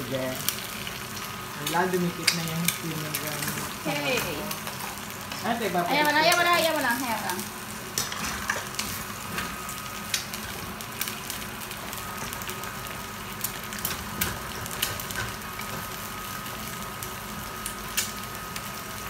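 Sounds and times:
rice sizzling in a pan: 0.0s - 19.0s.

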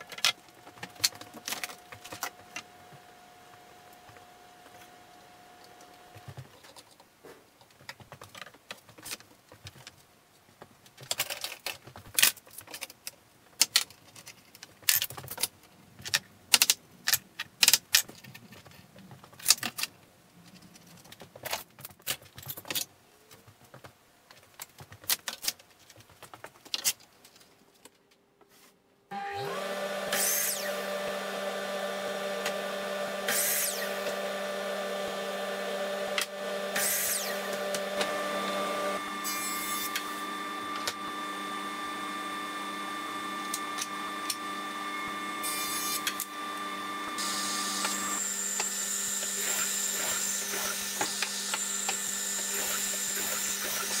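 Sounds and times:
clamps and wooden rails clicking: 0.0s - 10.0s, 10.9s - 28.0s, 29.4s - 54.0s
miter saw whining: 29.1s - 54.0s
saw blade cutting wood: 29.1s - 54.0s.

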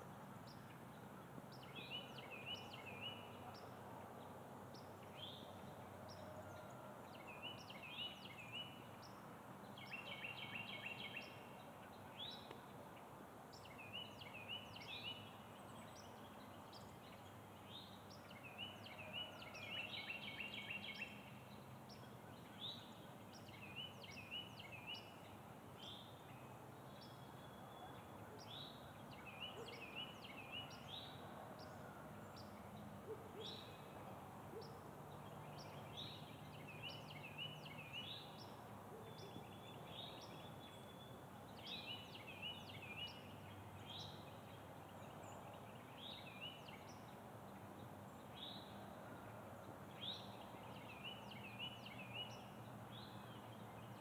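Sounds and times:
faint background hiss: 0.0s - 54.0s.

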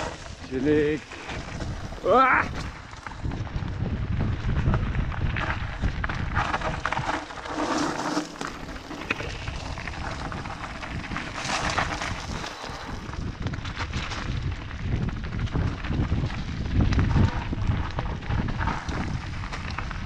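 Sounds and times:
bike rattling over stones: 0.0s - 20.0s
wind buffeting microphone: 0.0s - 20.0s
tyres crunching on gravel: 4.2s - 20.0s.

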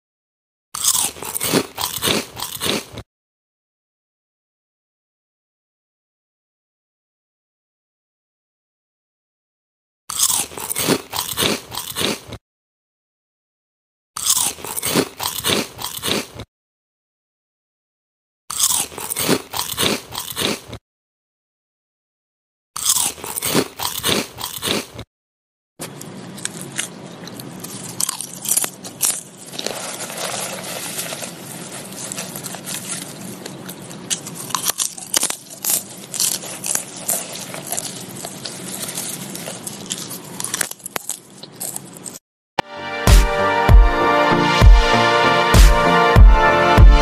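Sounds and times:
child chewing corn with crunches: 0.8s - 3.0s, 10.1s - 12.4s, 14.2s - 16.5s, 18.5s - 20.8s, 22.8s - 25.1s, 25.8s - 42.2s.

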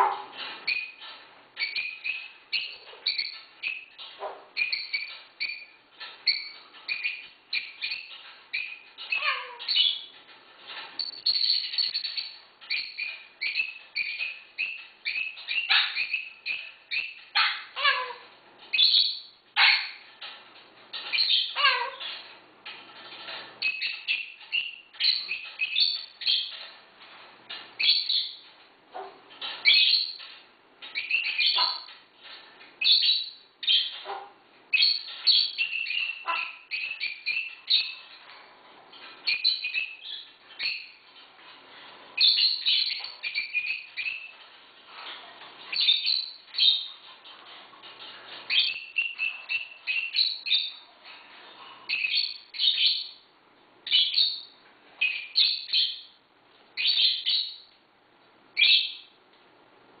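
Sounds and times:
parrot chirping and squawking: 0.0s - 20.3s, 20.9s - 26.7s, 27.5s - 32.0s, 32.8s - 50.9s, 51.5s - 53.2s, 53.8s - 56.1s, 56.8s - 57.7s, 58.6s - 59.0s.

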